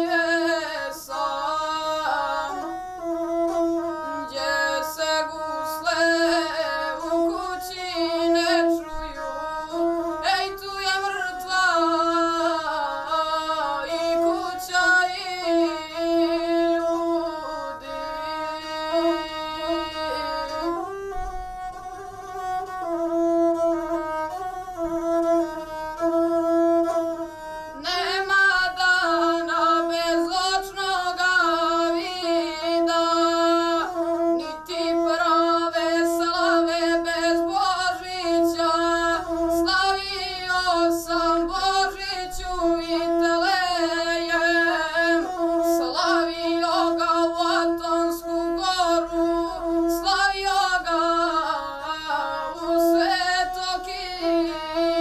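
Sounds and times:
bowed single-string fiddle: 0.0s - 55.0s
boy singing: 0.0s - 55.0s.

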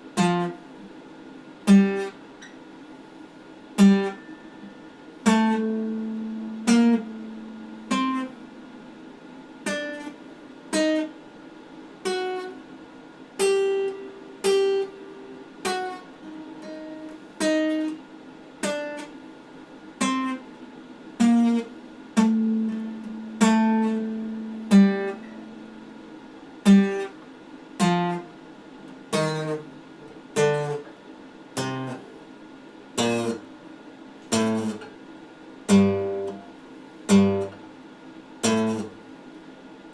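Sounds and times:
acoustic guitar plucked notes: 0.1s - 0.8s, 1.6s - 2.6s, 3.8s - 11.2s, 12.0s - 12.6s, 13.4s - 18.0s, 20.0s - 20.5s, 21.2s - 27.2s, 27.8s - 28.3s, 29.0s - 31.0s, 31.6s - 32.1s, 33.0s - 33.6s, 34.2s - 34.9s, 35.7s - 37.6s, 38.4s - 39.0s.

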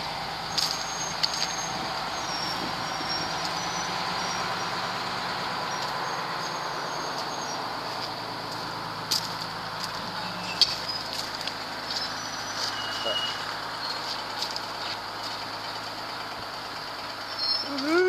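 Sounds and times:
crane engine running: 0.0s - 18.0s
high squeals: 0.5s - 7.6s, 10.0s - 11.2s, 11.8s - 14.3s, 17.2s - 18.0s.

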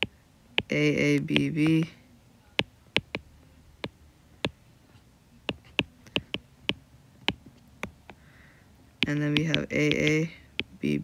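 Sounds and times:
stylus tapping on glass screen: 3.0s - 4.6s, 5.5s - 8.2s, 9.0s - 10.8s.

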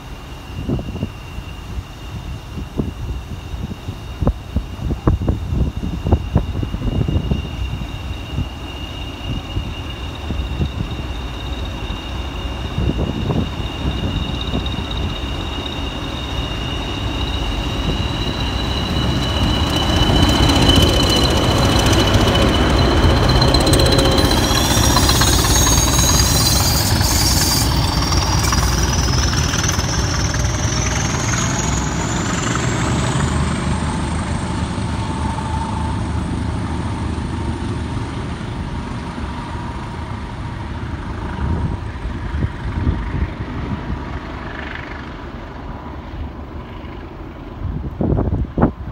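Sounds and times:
high whistle rising in pitch: 0.0s - 36.3s
diesel locomotive engines throbbing: 0.0s - 48.9s.

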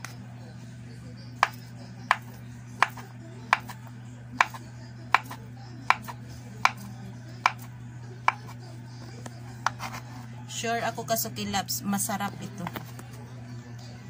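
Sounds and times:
knife tapping plastic cutting board: 1.4s - 3.8s, 4.4s - 6.8s, 7.4s - 8.6s.

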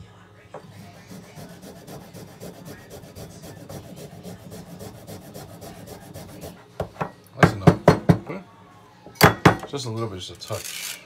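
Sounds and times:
ginger grating on metal grater: 0.8s - 6.6s.

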